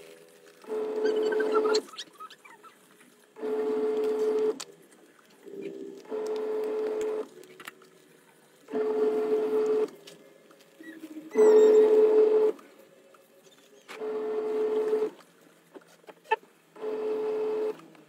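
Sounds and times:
washing machine motor humming: 0.6s - 2.0s, 3.4s - 4.8s, 5.4s - 10.0s, 14.0s - 15.2s, 16.3s - 17.9s.

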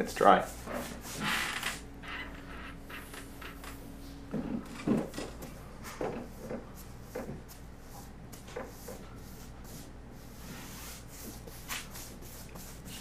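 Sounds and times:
paint brush rubbing on wall: 0.4s - 1.8s, 5.9s - 13.0s.

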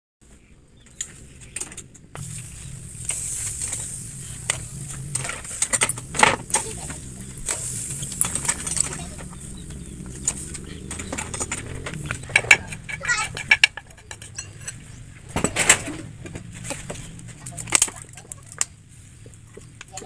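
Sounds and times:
steady high hiss: 0.4s - 13.9s
snail shells clicking on grill: 1.0s - 14.6s.

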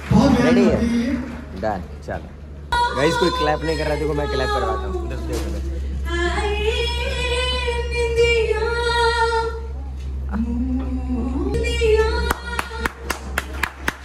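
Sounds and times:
woman singing: 6.0s - 13.1s
hand claps: 12.2s - 14.0s.

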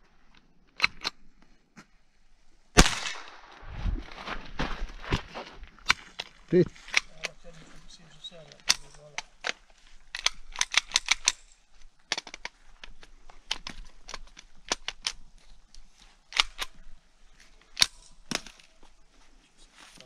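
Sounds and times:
rifle shots: 2.8s - 3.6s.

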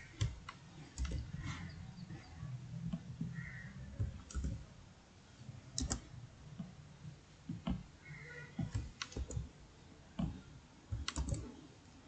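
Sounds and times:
keyboard keystroke clicks: 0.1s - 1.4s, 3.0s - 4.7s, 5.8s - 6.1s, 10.2s - 11.6s.

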